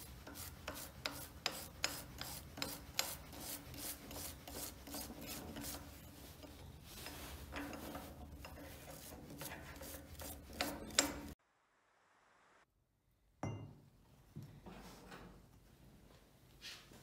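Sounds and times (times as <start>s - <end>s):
scraper scraping metal: 0.0s - 11.4s
wire brush scrubbing rusty steel: 0.0s - 11.4s.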